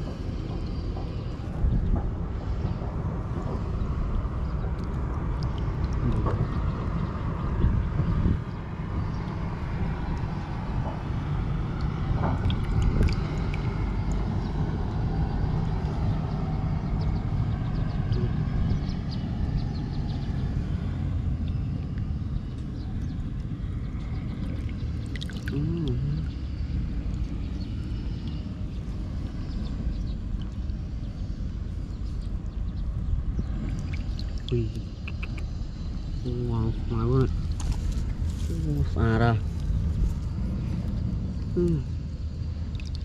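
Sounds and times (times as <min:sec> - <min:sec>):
steady low rumble: 0:00.0 - 0:43.0
water splashes and drips: 0:04.7 - 0:06.4, 0:11.8 - 0:14.4, 0:24.2 - 0:25.8, 0:33.6 - 0:35.3, 0:42.6 - 0:43.0.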